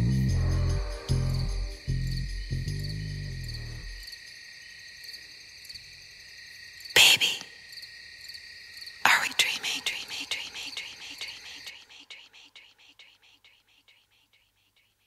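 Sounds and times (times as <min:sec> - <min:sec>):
crickets chirring: 0:00.0 - 0:15.0.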